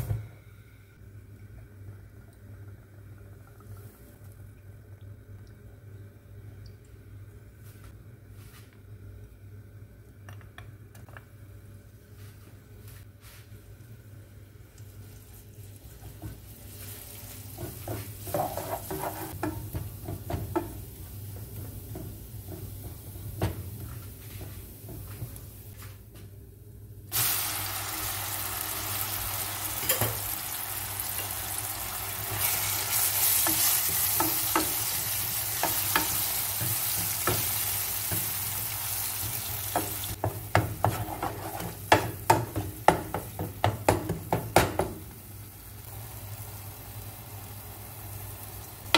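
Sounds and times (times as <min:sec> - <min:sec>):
loud sizzle: 0:13.8 - 0:25.8, 0:27.1 - 0:48.9
garlic frying in oil: 0:14.6 - 0:25.7, 0:27.1 - 0:48.9
spatula knocking and scraping pan: 0:17.4 - 0:25.4, 0:32.3 - 0:38.4, 0:39.2 - 0:45.0.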